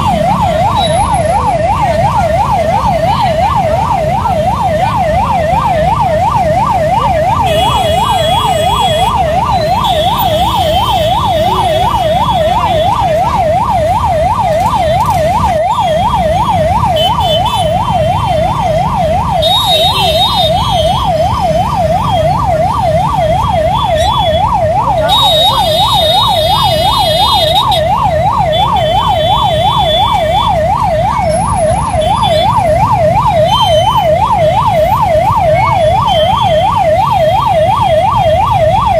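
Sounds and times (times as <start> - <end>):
emergency siren wailing: 0.0 - 38.9
idling engines rumbling: 0.0 - 38.9
vehicle horns beeping: 7.4 - 12.9, 19.4 - 21.0, 25.0 - 27.9.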